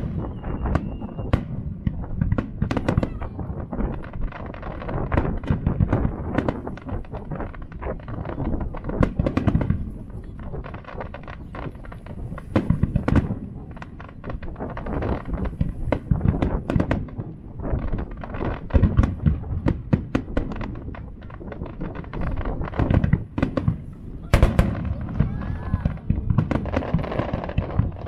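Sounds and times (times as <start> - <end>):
fireworks booming and crackling: 0.0 - 28.0.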